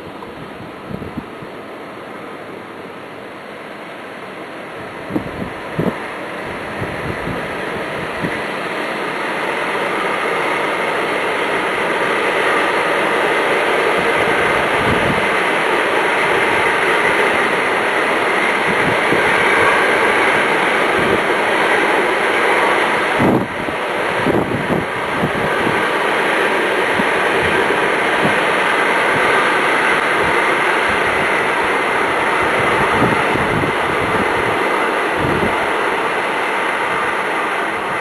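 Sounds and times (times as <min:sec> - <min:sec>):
wind gusts buffeting microphone: 0:00.0 - 0:01.6, 0:04.7 - 0:38.0
storm wind roaring through trees: 0:00.0 - 0:38.0.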